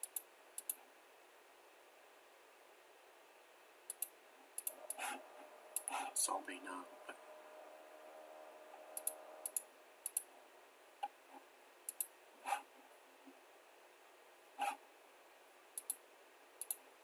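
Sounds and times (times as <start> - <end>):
computer mouse clicking: 0.0 - 0.8, 3.9 - 5.2, 5.8 - 6.0, 9.0 - 10.3, 11.9 - 12.6, 15.8 - 16.0, 16.6 - 16.8
faint steady hiss: 0.0 - 17.0.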